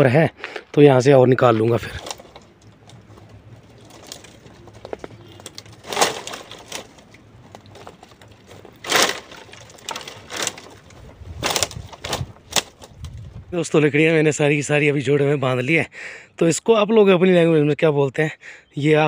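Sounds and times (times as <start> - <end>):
sticks crackling: 0.0 - 13.6
dry sticks rustling and clattering: 0.4 - 13.6.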